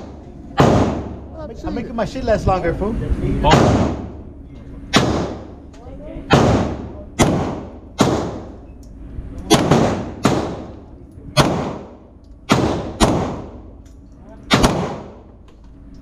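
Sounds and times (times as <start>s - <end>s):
handgun shots echoing: 4.9s - 5.5s, 6.3s - 8.6s, 9.5s - 10.8s, 11.4s - 13.6s, 14.5s - 15.2s.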